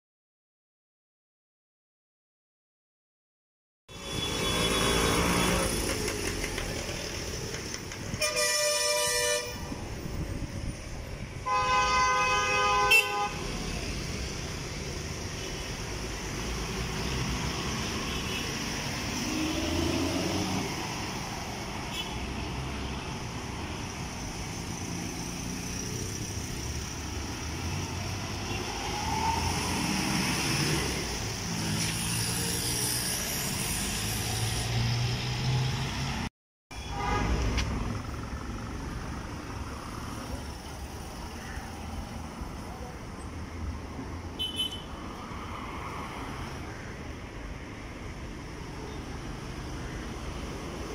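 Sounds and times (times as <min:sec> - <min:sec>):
vehicles passing: 0:03.9 - 0:50.9
car horn: 0:08.2 - 0:09.8, 0:11.4 - 0:13.4, 0:36.7 - 0:37.6, 0:44.4 - 0:44.9.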